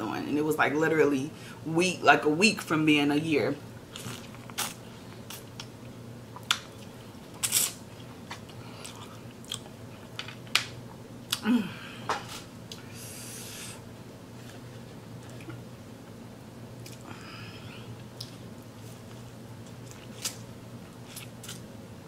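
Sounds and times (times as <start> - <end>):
person chewing with mouth smacks: 4.0 - 10.2.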